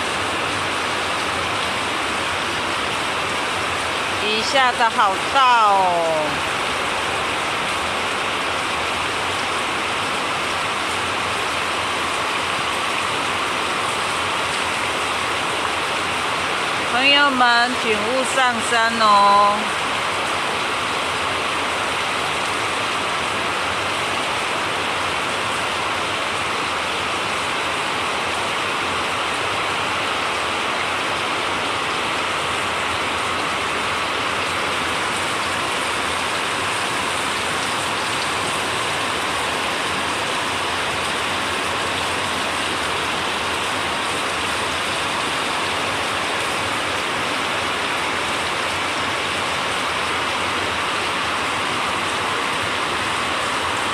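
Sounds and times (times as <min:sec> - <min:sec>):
heavy rain on road: 0:00.0 - 0:53.9
runoff water rushing: 0:00.0 - 0:53.9.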